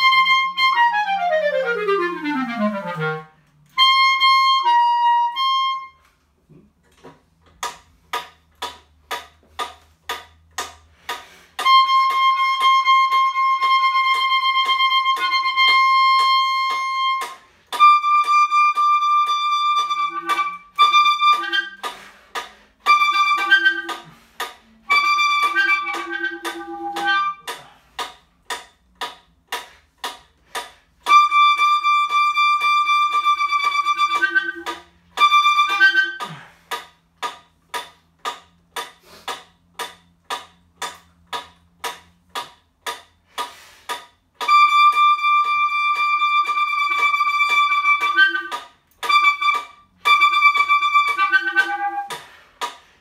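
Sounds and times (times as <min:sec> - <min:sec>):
clarinet playing tongued notes: 0:00.0 - 0:06.2, 0:11.6 - 0:27.7, 0:31.0 - 0:36.5, 0:44.4 - 0:52.4.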